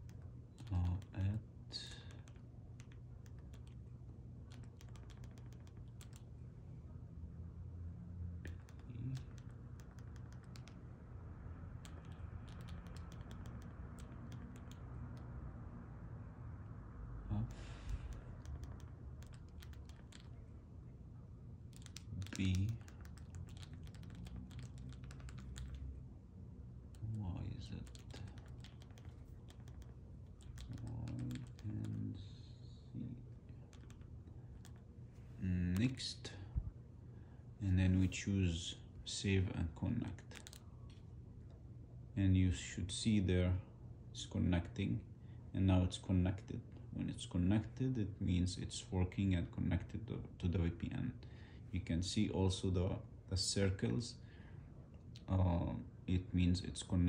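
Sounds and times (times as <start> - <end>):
low steady hum: 0.0 - 57.0
remote buttons clicking: 4.5 - 6.3, 8.5 - 10.8, 11.8 - 15.3, 17.5 - 20.4, 21.7 - 25.9, 27.8 - 31.7, 33.7 - 34.8.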